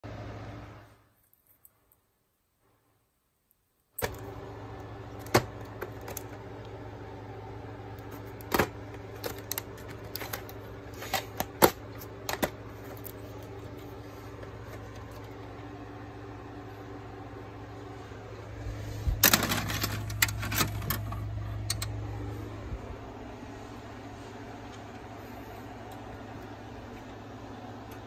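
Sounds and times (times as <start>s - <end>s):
low electrical hum: 0.0s - 28.0s.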